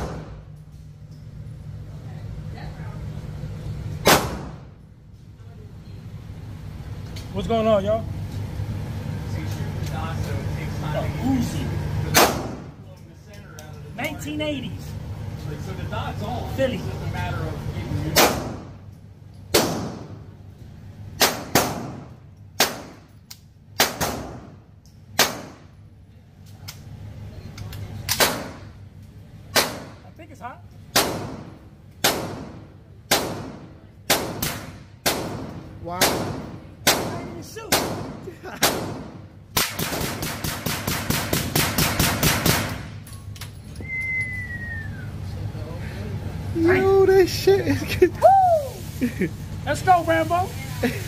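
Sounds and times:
gunshots echoing indoors: 4.0s - 4.6s, 37.7s - 42.9s.

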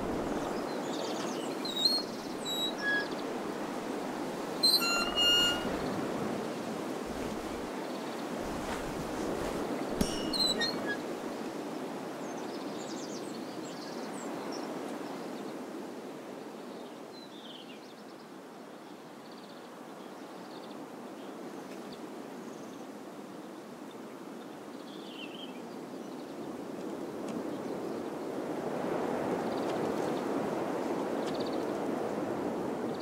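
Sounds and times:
low rush of wind: 0.0s - 16.8s
faint high chirps: 4.6s - 6.0s, 10.0s - 11.0s.

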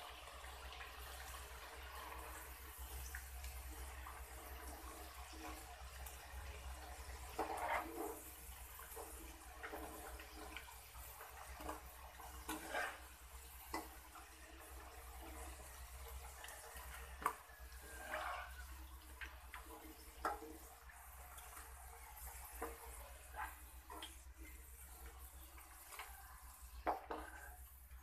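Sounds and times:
fries sizzling in hot oil: 0.0s - 28.0s
metal skimmer scraping a wok: 7.0s - 18.8s.

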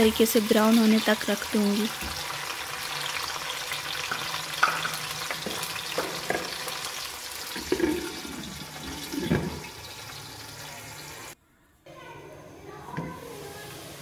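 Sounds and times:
onions sizzling in a pot: 0.0s - 11.4s, 13.1s - 14.0s
utensil knocking against pot: 4.1s - 6.5s.

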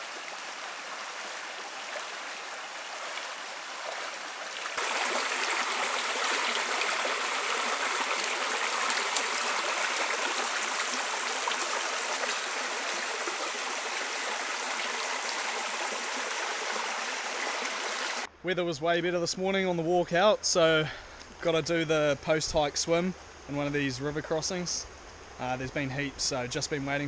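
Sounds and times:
stream splashing over rocks: 0.0s - 18.3s.

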